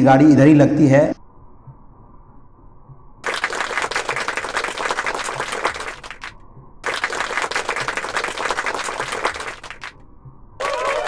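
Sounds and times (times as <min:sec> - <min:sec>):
applause: 0:03.2 - 0:10.0, 0:10.6 - 0:11.0.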